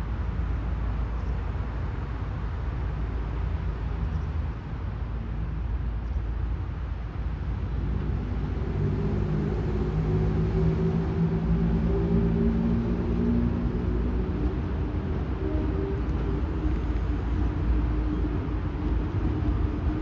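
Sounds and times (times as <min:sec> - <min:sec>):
electric locomotive rumble: 0:08.6 - 0:20.0.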